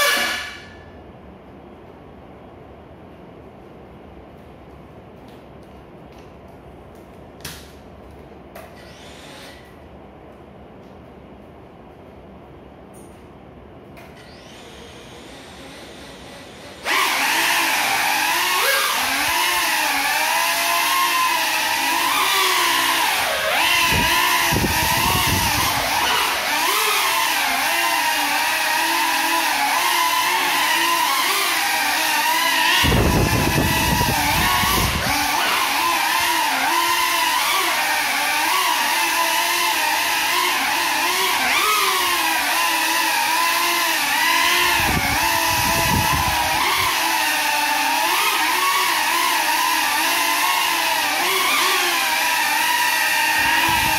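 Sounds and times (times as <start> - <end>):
quadcopter motors whining: 0.0 - 0.9, 8.6 - 9.7, 14.0 - 53.9.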